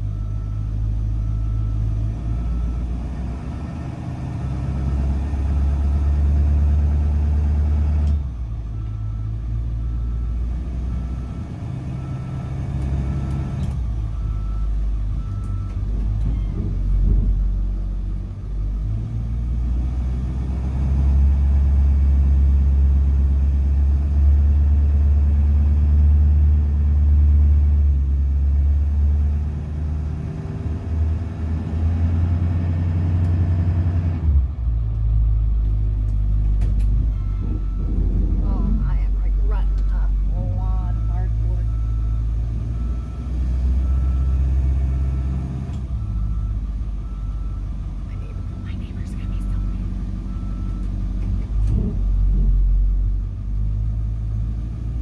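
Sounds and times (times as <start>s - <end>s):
bus engine rumble: 0.0s - 55.0s
faint high beep: 47.3s - 50.8s.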